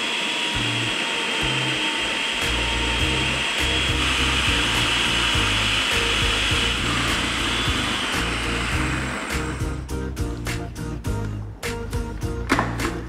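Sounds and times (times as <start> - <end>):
food processor whirring: 0.0 - 9.9
background music with bass line: 0.6 - 1.8, 2.4 - 13.0.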